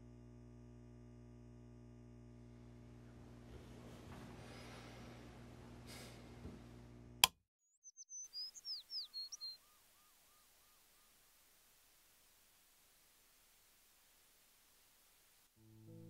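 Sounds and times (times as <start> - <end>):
low steady hum: 0.0 - 7.2
bird chirping: 7.6 - 11.5.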